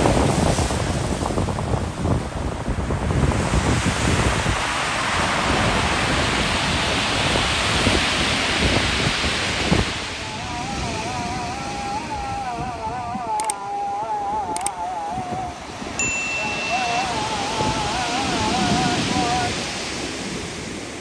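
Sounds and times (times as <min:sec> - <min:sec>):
storm surf breaking on shore: 0:00.0 - 0:21.0
background music wavering melody: 0:10.4 - 0:19.6
short clicks: 0:13.3 - 0:13.6, 0:14.5 - 0:14.8.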